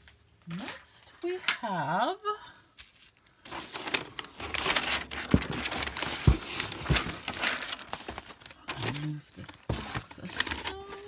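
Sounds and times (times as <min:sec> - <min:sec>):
tissue paper rustling: 0:02.8 - 0:11.0.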